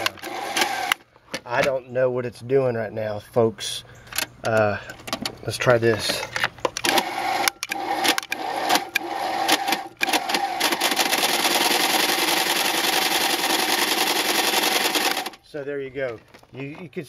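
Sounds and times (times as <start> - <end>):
sewing machine running: 0.0 - 1.0, 6.8 - 15.4.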